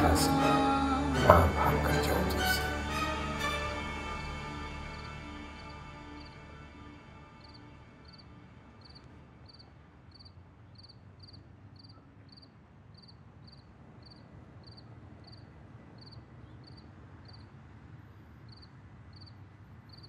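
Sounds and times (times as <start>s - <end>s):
cricket chirping: 3.4s - 17.5s, 18.5s - 20.0s.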